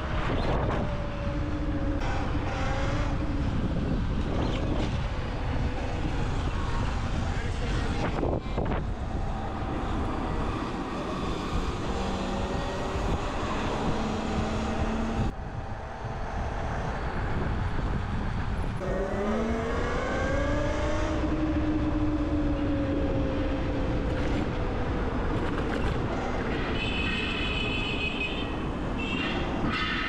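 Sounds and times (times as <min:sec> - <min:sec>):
wind and road rush: 0:00.0 - 0:30.0.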